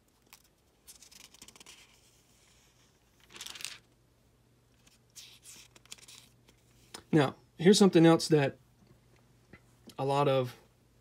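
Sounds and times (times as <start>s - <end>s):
paper pages turning: 0.1s - 3.9s, 4.8s - 7.0s.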